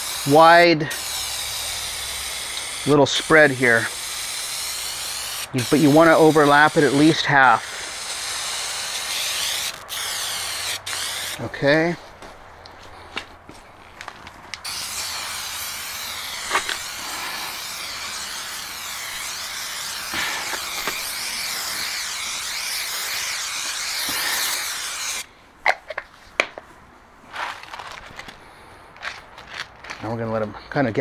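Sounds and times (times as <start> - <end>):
aerosol spray can hissing: 0.0 - 11.4, 14.6 - 25.3.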